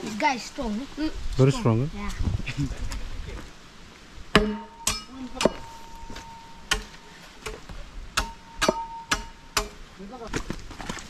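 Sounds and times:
machete chopping bamboo: 0:04.4 - 0:09.8
hollow bamboo ringing: 0:04.4 - 0:09.9.

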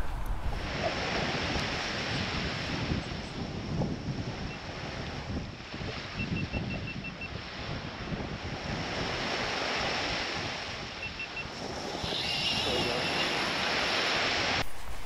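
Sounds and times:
surf washing onto beach: 0:00.0 - 0:15.0
wind gusting on microphone: 0:00.0 - 0:15.0.

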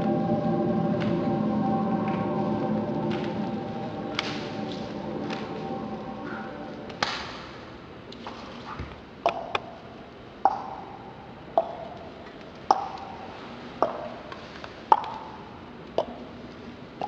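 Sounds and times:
percussion struck with ringing tone: 0:00.0 - 0:07.6.

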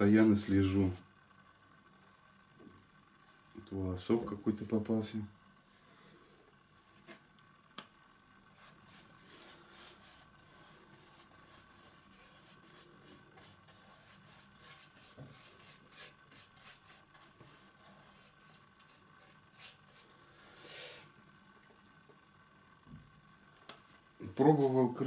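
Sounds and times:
faint steady hum: 0:00.0 - 0:25.0
paintbrush swishing strokes: 0:08.6 - 0:20.1.

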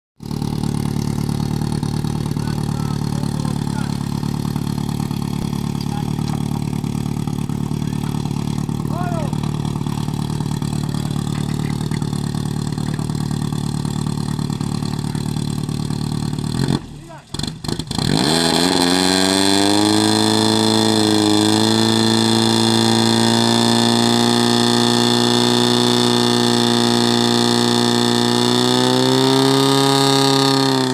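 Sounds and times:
petrol pump engine running: 0:00.2 - 0:16.6.

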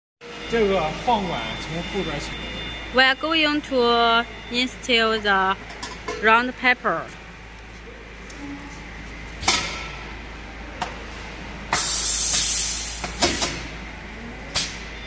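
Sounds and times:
machine hum: 0:00.2 - 0:15.0
air hiss: 0:11.7 - 0:13.5.

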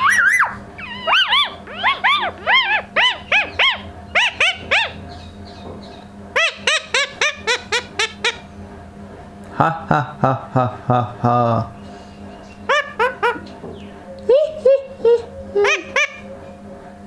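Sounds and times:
parakeet shrill calls: 0:00.0 - 0:08.4, 0:15.6 - 0:16.3.

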